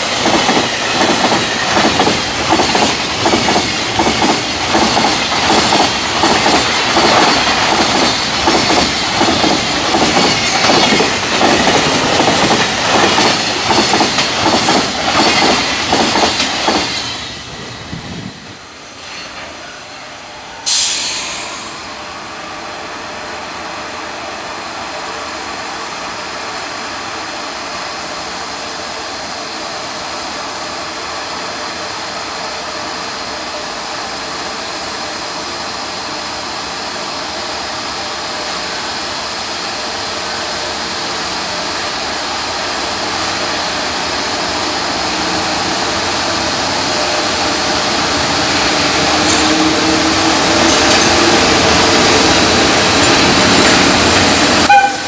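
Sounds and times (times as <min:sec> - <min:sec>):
train wheels rumbling on rail: 0:00.0 - 0:55.0.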